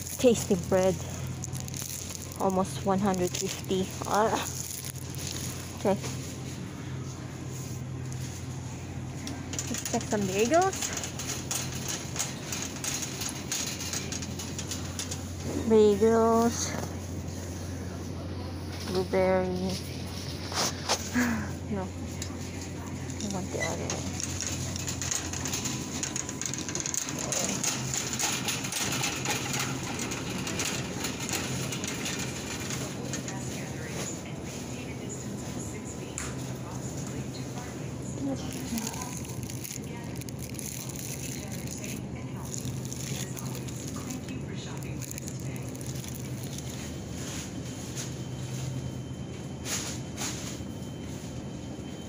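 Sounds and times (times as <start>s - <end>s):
wire basket rattling: 0.0s - 5.7s, 9.3s - 16.8s, 23.2s - 34.0s, 38.4s - 47.4s
shopping cart wheels rumbling: 0.0s - 52.0s
steady low hum: 0.0s - 52.0s.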